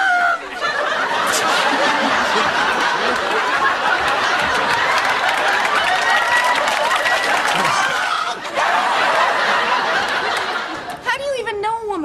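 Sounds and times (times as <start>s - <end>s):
large crowd laughing: 0.0s - 11.0s.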